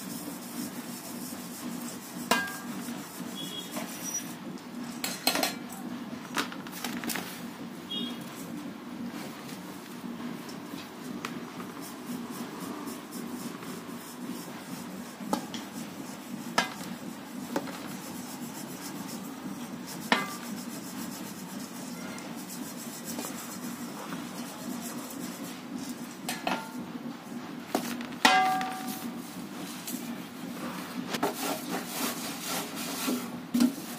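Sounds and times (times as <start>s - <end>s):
powder rustling through sieve: 31.0s - 33.9s.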